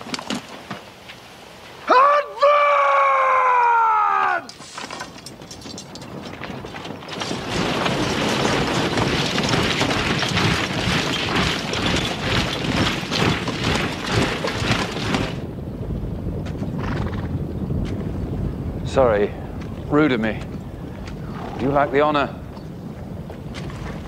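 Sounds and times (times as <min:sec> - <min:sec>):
army tramping and clanking: 0:00.0 - 0:01.2, 0:04.4 - 0:15.5, 0:19.6 - 0:24.0.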